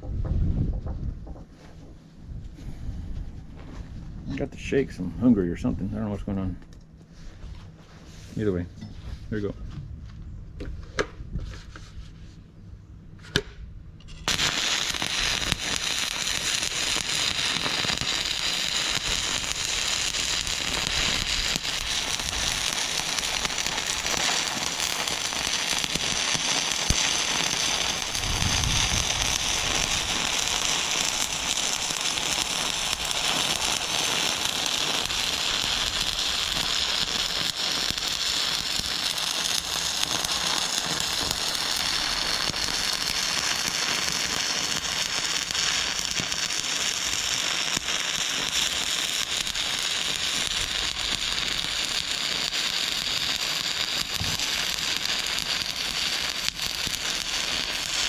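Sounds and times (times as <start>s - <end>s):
welding arc crackling: 14.1s - 58.0s.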